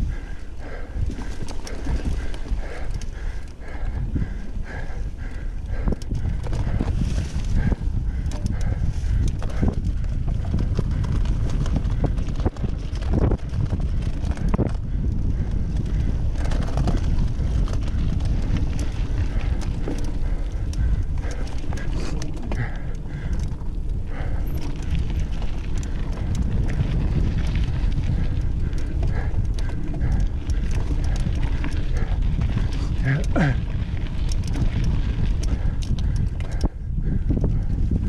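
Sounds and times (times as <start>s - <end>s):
bike rattling and clicking: 0.0s - 38.0s
wind and tyres rumbling: 0.0s - 38.0s.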